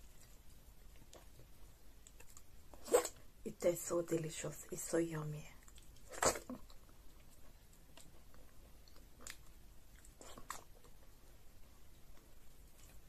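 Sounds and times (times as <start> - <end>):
faint close-up chewing: 0.0 - 3.3, 5.5 - 13.0
wet mouth clicks: 8.9 - 10.7.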